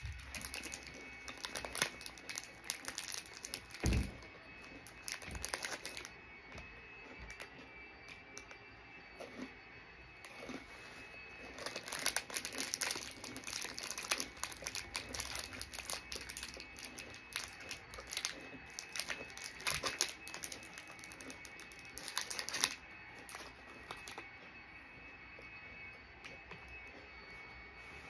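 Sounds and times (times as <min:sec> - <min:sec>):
plastic wrapper crinkling: 0:00.0 - 0:06.2, 0:11.4 - 0:24.3.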